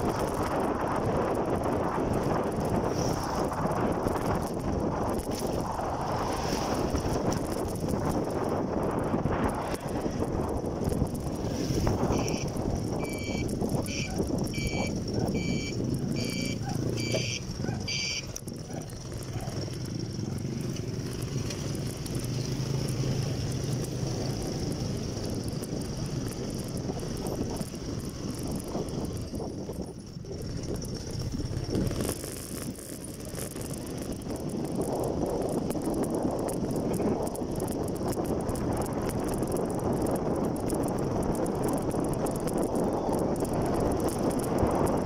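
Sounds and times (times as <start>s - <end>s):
motorcycle engine hum: 0.0s - 45.0s
wind noise: 0.0s - 45.0s
electronic beeps: 12.1s - 18.3s.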